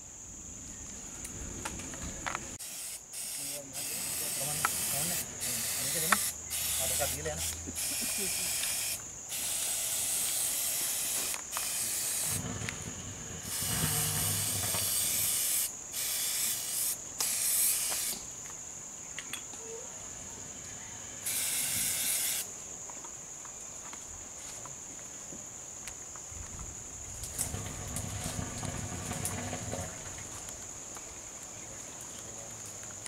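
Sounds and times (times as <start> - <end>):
spray hissing in bursts: 2.6 - 18.3, 21.2 - 22.5.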